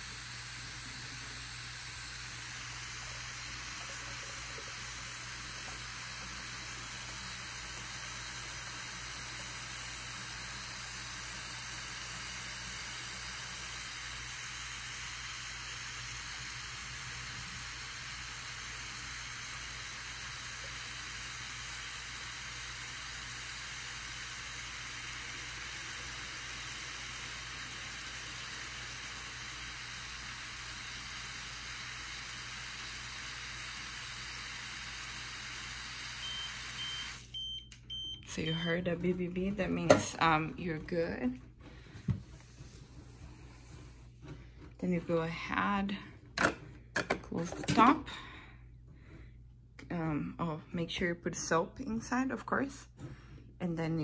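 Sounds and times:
dishwasher beeping: 36.2 - 39.1.

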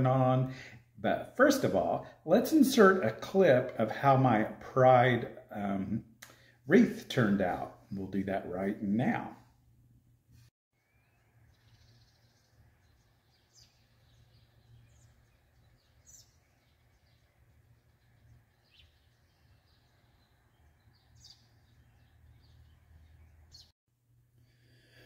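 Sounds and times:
faint bird chirps: 10.8 - 23.7.

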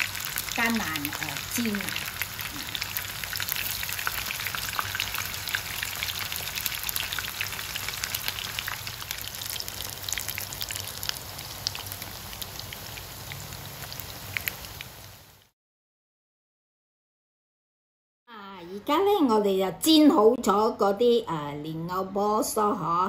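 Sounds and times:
oil sizzling and popping in pan: 0.0 - 15.5.

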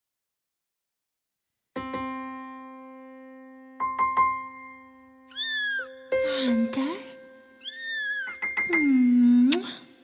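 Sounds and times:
piano music: 1.8 - 9.5.

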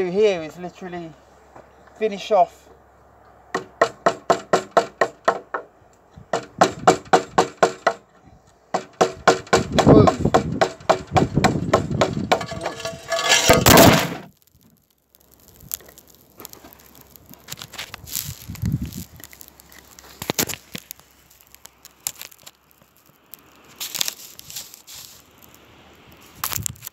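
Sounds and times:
camera falling crash: 12.4 - 14.4.

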